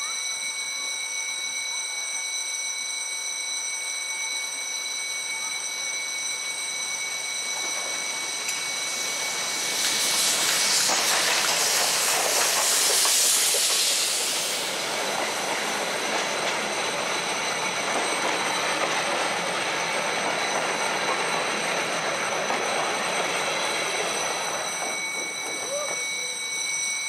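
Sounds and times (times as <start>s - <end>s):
steam locomotive passing: 5.5s - 26.8s
steam hissing: 6.3s - 26.0s
wheels clattering over rail joints: 7.5s - 25.9s.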